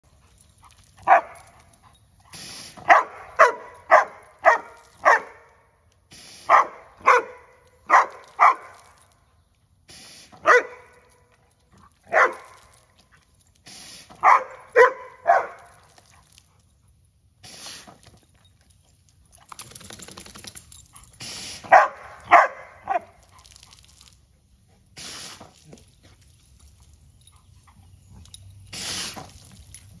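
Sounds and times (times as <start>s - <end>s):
dog barking: 1.0s - 1.4s, 2.8s - 5.5s, 6.5s - 8.7s, 10.4s - 10.9s, 12.1s - 12.5s, 14.2s - 15.7s, 21.7s - 23.2s.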